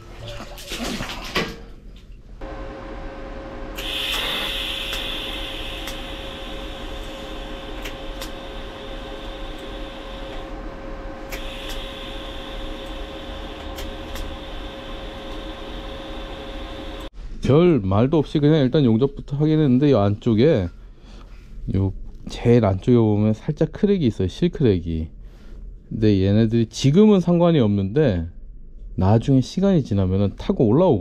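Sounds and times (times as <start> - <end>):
steady hum: 2.2 - 17.4
welding arc hissing: 2.9 - 17.1.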